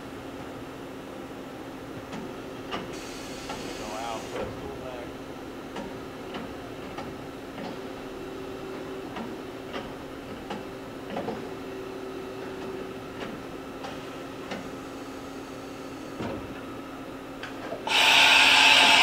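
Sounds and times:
machining center humming: 17.8s - 19.0s.

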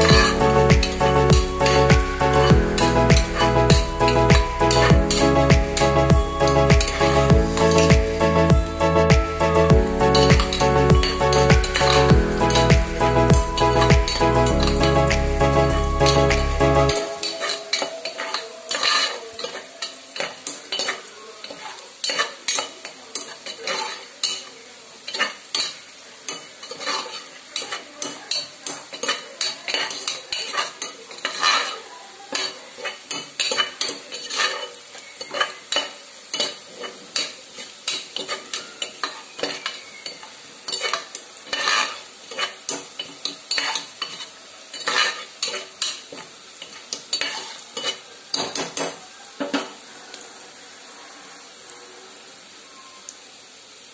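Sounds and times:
chicken sizzling in pot: 0.0s - 53.9s
spoon scraping and clinking pot: 17.2s - 24.5s, 25.1s - 39.7s, 40.7s - 46.0s, 46.6s - 48.0s.

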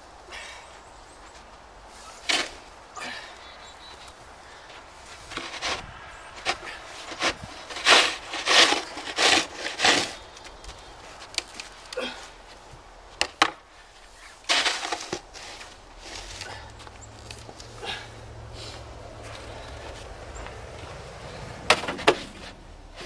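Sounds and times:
snow shovel scraping snow: 1.9s - 2.7s, 5.0s - 10.3s, 14.2s - 16.6s.

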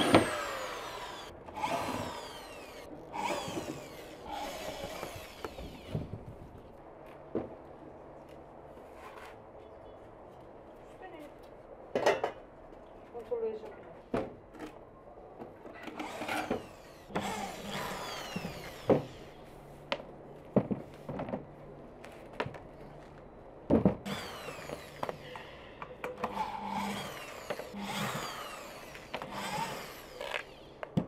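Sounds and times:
cordless drill whining: 0.0s - 6.1s, 16.0s - 19.4s, 24.1s - 25.4s, 26.2s - 30.9s.

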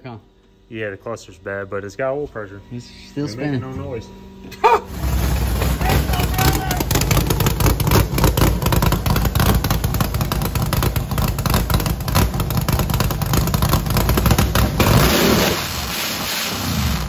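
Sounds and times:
vee eight engine rumbling: 4.9s - 15.7s
hiss: 14.9s - 17.0s.

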